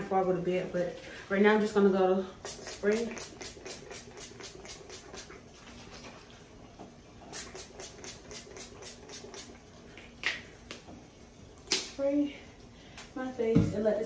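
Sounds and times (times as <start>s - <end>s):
spray bottle hissing: 2.4s - 5.3s, 7.3s - 9.5s.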